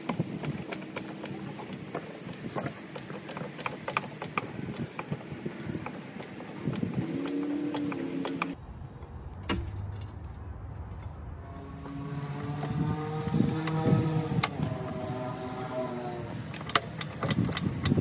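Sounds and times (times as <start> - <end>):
floor jack clicking and knocking: 0.0 - 8.6, 16.5 - 18.0.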